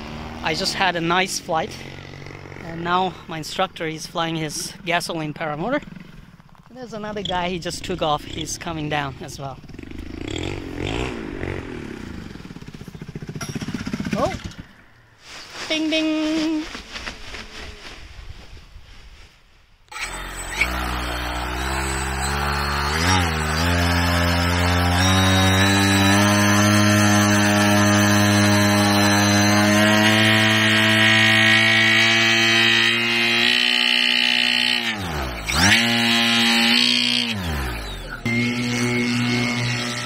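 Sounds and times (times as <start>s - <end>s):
paramotor engine and propeller: 4.3s - 15.0s, 19.9s - 40.0s.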